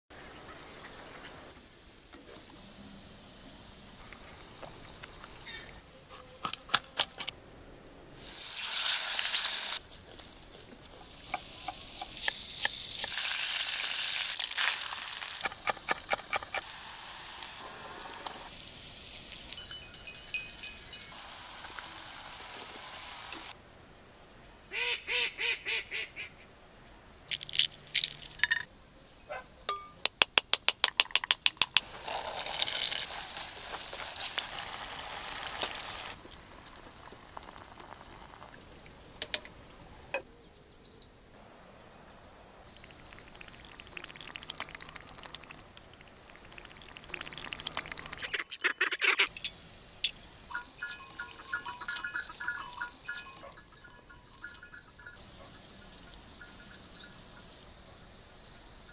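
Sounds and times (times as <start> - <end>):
chicken sizzling in a pan: 8.2 - 9.8, 12.4 - 15.4, 16.6 - 19.2, 21.2 - 23.5, 31.9 - 36.2
birds chirping: 28.6 - 30.6, 38.5 - 58.9.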